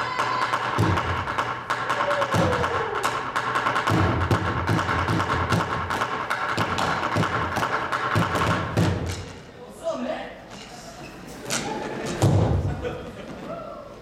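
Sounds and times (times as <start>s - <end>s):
percussive dance music: 0.0s - 9.4s.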